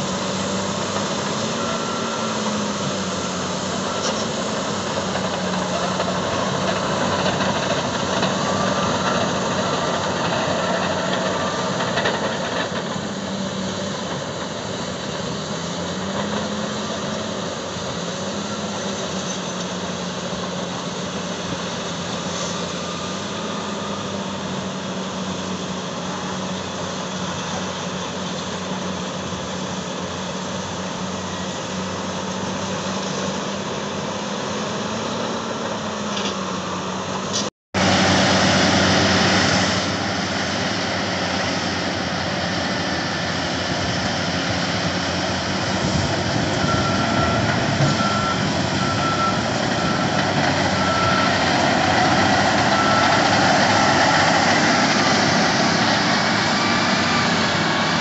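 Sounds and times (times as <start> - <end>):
diesel earthmover engines: 0.0 - 58.0.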